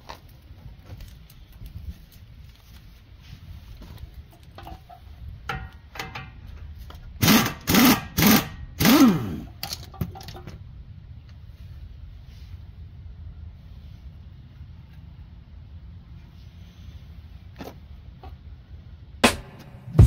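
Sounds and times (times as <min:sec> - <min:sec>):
tools clicking and clanking: 0:04.4 - 0:06.4, 0:07.2 - 0:10.5.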